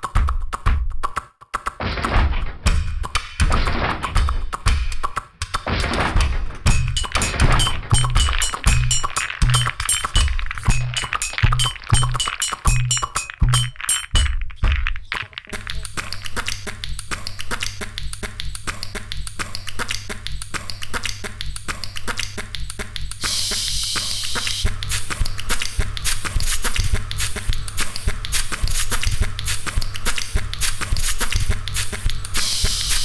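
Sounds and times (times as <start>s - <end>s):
rhythmic clicks and taps: 0.0s - 33.0s
spray can hissing: 23.2s - 33.0s.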